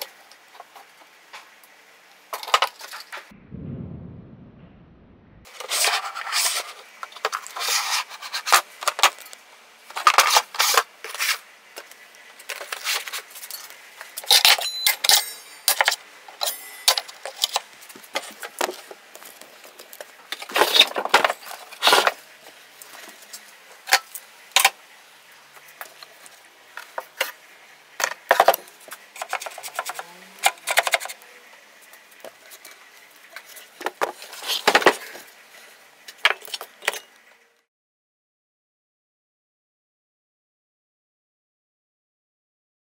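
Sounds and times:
metal tools clinking: 14.3s - 17.6s.

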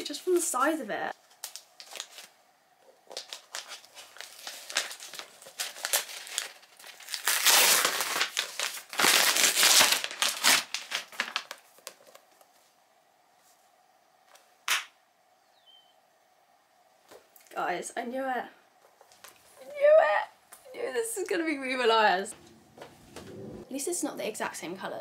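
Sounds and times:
paper tearing and crinkling: 3.1s - 12.0s.

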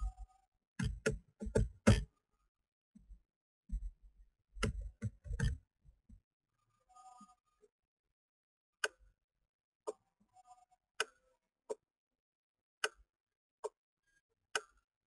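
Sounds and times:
computer mouse clicks: 4.6s - 5.6s, 14.6s - 14.8s.

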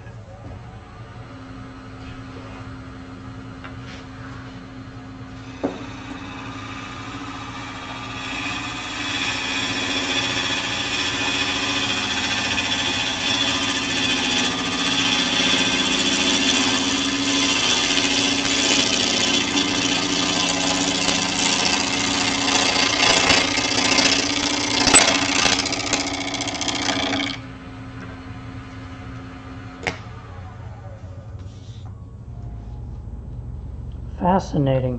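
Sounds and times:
lathe motor hum: 0.0s - 34.3s
tool shaving wood hiss: 5.3s - 27.4s.

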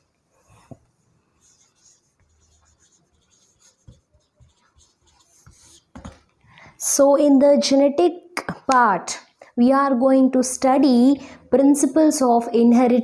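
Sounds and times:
marker scratching on whiteboard: 0.3s - 6.4s.

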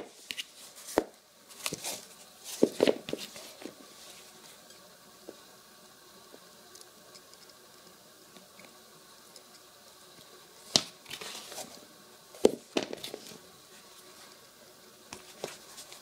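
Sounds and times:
small clicks and rustles: 6.3s - 11.8s.

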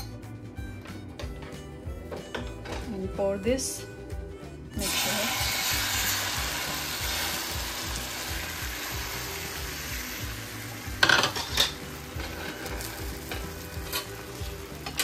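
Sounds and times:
omelette sizzling in a pan: 4.8s - 15.0s.

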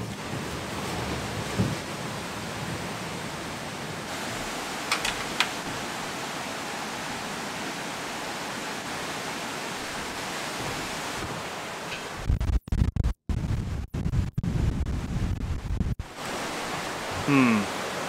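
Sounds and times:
rain falling: 0.0s - 12.2s, 16.0s - 18.0s.

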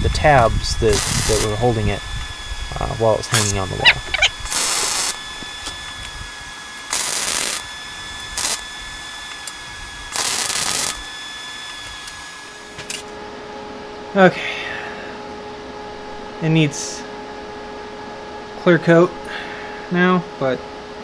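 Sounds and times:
welding arc crackling: 0.0s - 12.6s.

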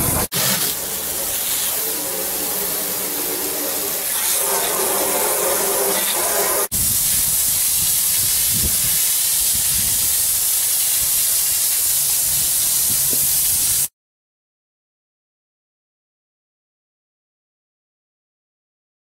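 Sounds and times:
water spray hissing on hard surfaces: 0.0s - 13.9s.

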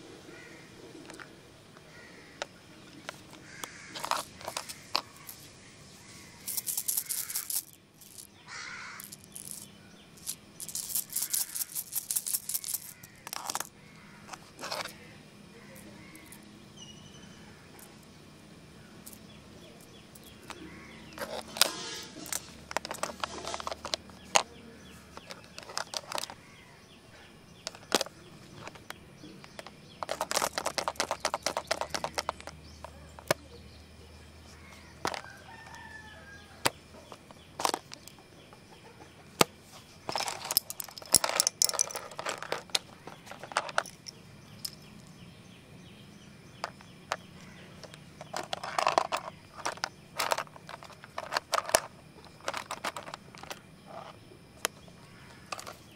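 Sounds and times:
pens rattling in plastic box: 3.0s - 5.4s, 6.4s - 8.3s, 8.9s - 13.7s, 20.2s - 24.4s, 25.2s - 26.4s, 27.6s - 32.6s, 35.0s - 35.8s, 37.2s - 38.0s, 40.1s - 44.8s, 46.6s - 54.1s, 55.4s - 55.9s.

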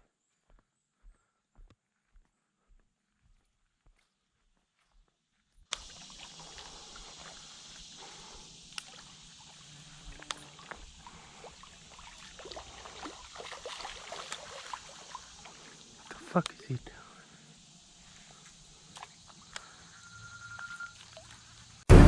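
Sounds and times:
shallow water trickling and lapping: 5.7s - 21.8s.

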